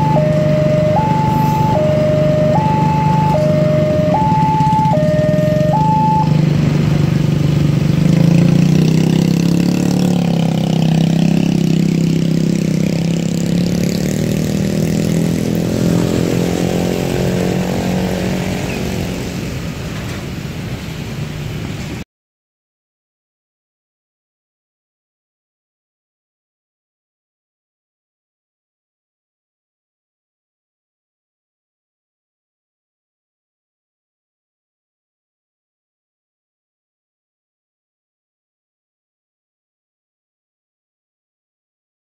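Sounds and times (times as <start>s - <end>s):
level-crossing alarm two-tone signal: 0.0s - 6.4s
train rumbling on rails: 16.2s - 22.0s.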